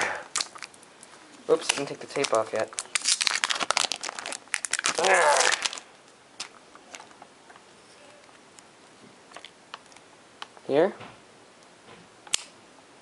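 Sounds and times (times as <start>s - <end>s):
tape crackling as pulled off: 0.0s - 7.3s.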